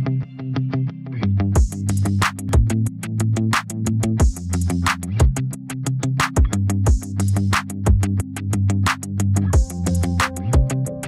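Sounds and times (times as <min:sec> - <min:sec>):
deep kick drum: 0:01.6 - 0:01.9, 0:02.5 - 0:02.9, 0:04.2 - 0:04.5, 0:05.2 - 0:05.4, 0:06.4 - 0:07.2, 0:07.9 - 0:08.2, 0:09.6 - 0:09.8, 0:10.6 - 0:10.8.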